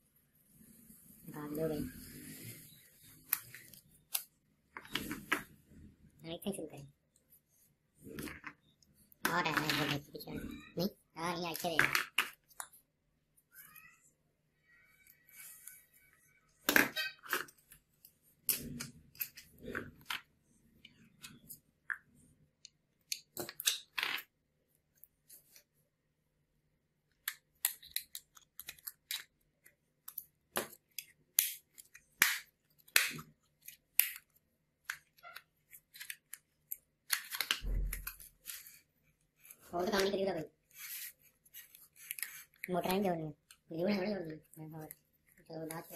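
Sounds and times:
wheels set on wooden table: 0:23.4 - 0:24.3.

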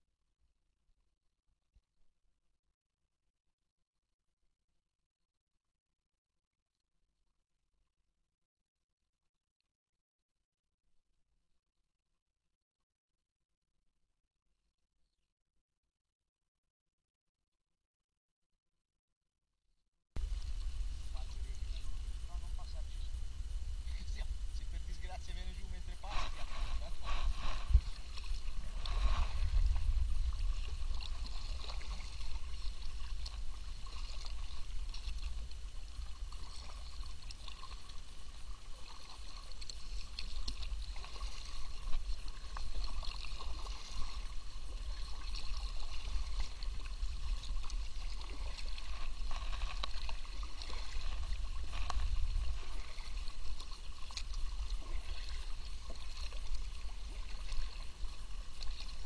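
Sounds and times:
steady low rumble: 0:20.2 - 0:38.6
paddle dipping and dripping: 0:20.2 - 0:59.0
small water splashes: 0:20.2 - 0:59.0.

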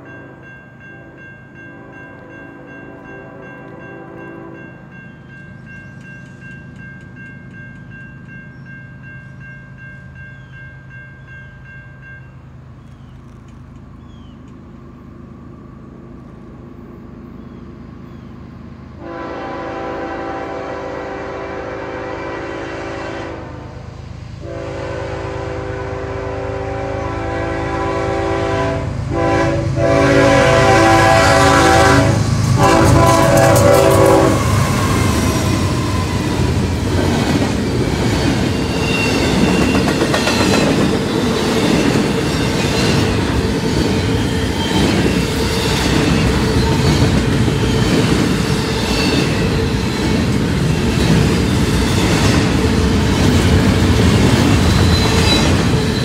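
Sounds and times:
crossing bell ringing: 0:00.0 - 0:12.8, 0:32.6 - 0:52.4
rail noise: 0:00.0 - 0:56.0
locomotive horn: 0:01.7 - 0:04.8, 0:19.0 - 0:36.1.

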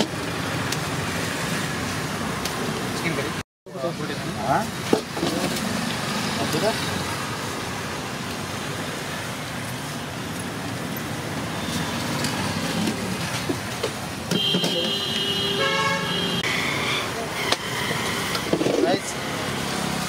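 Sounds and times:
city road traffic: 0:00.0 - 0:20.0
vehicle horn: 0:14.3 - 0:16.5.

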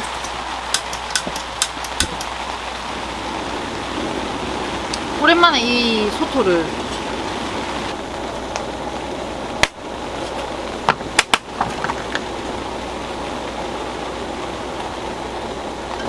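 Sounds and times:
heavy rain: 0:00.0 - 0:16.0.

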